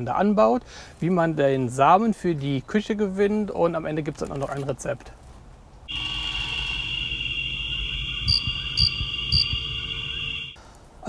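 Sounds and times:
high cricket-like trill: 5.9 - 10.6.

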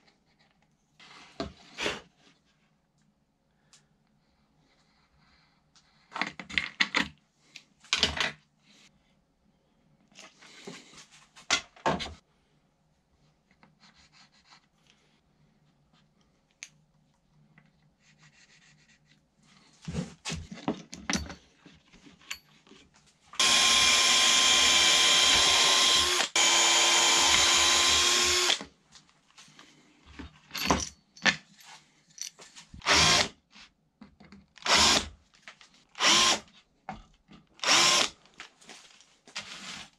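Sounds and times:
tool handling knocks and clicks: 19.9 - 22.8
cordless drill into wood: 23.4 - 28.7, 32.8 - 33.3, 34.6 - 35.2, 36.0 - 36.5, 37.6 - 38.2.

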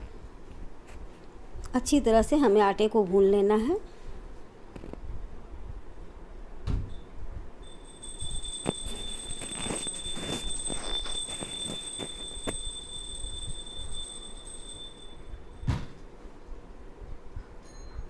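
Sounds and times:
steady high-pitched whine: 6.9 - 16.9.

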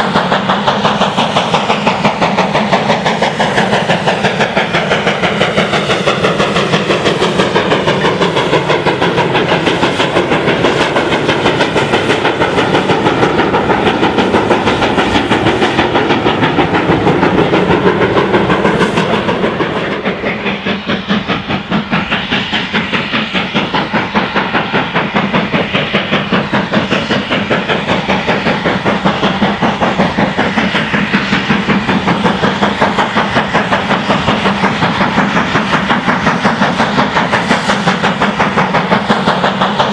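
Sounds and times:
steam hissing: 0.0 - 39.9
steam locomotive exhaust beats: 0.0 - 39.9.

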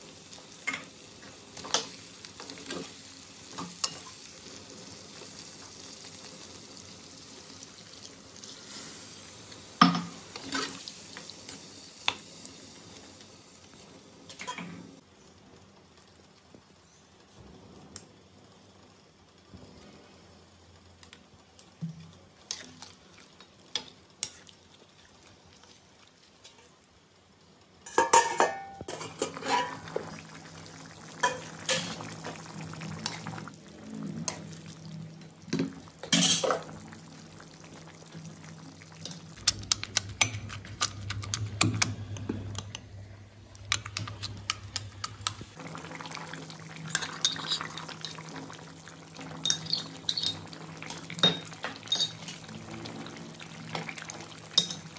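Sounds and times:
gravy sizzling: 0.0 - 54.9
spoon stirring and scraping pan: 9.9 - 10.9, 21.9 - 26.7, 27.9 - 30.2, 43.6 - 45.5, 46.8 - 48.5, 49.3 - 52.4.

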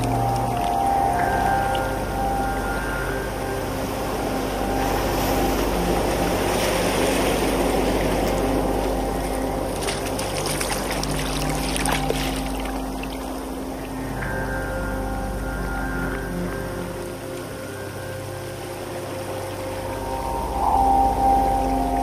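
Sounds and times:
water sloshing among rocks: 0.0 - 14.4
drone of held musical tones: 0.0 - 22.0
fine crackling and fizzing: 0.0 - 22.0.

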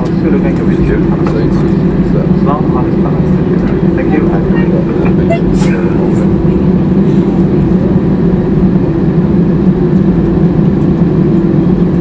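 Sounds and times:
aircraft cabin hum: 0.0 - 12.0
deep rumble: 0.0 - 12.0.

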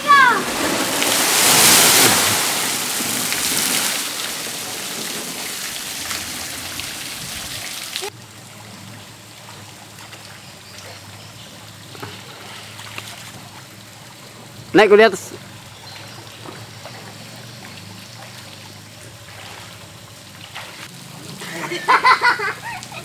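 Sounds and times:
water cascading into pool: 0.0 - 15.2
water trickling and lapping: 0.0 - 23.0.

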